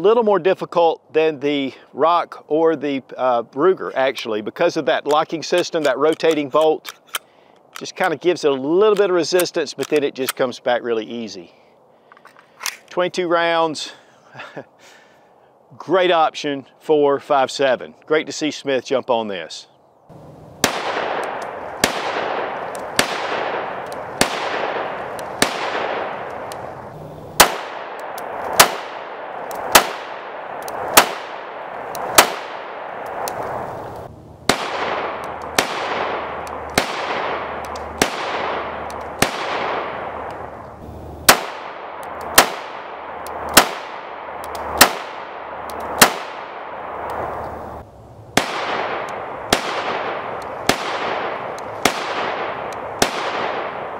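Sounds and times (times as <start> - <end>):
pistol shots echoing: 20.6 - 33.6, 34.5 - 40.6, 41.2 - 47.4, 48.4 - 53.9.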